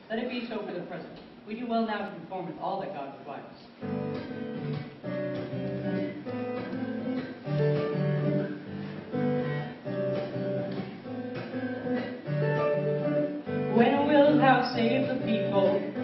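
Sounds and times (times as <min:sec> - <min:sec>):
acoustic guitar strumming chords: 0:03.8 - 0:16.0.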